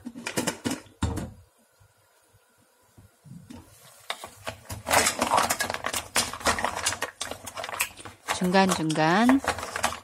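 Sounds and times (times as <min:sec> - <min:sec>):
mussel shells clattering in a pot: 0:04.1 - 0:10.0.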